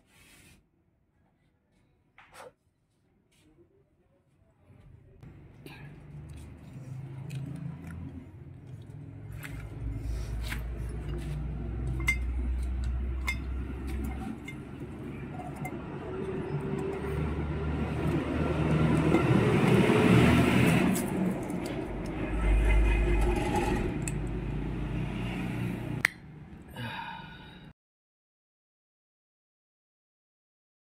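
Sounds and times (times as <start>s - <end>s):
low vehicle rumble: 5.2s - 26.0s
metallic clinks of engine parts: 11.9s - 17.0s.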